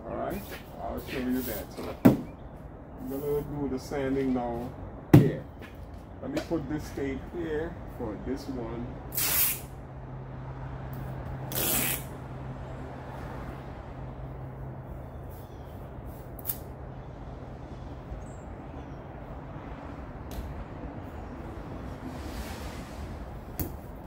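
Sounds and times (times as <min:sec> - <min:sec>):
masking tape ripping off roll: 0:09.1 - 0:09.7, 0:11.5 - 0:12.1.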